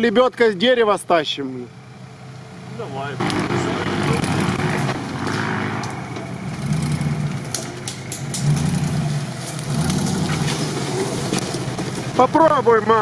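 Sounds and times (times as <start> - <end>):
car engine running at low revs: 1.1 - 13.0
sharp cracks: 3.2 - 12.2.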